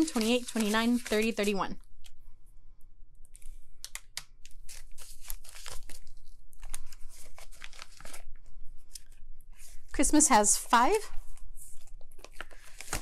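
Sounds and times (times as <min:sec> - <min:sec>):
banknotes rustling: 0:00.0 - 0:01.8, 0:04.6 - 0:13.0
plastic envelope crinkling: 0:00.0 - 0:02.2, 0:03.8 - 0:09.8, 0:11.6 - 0:13.0.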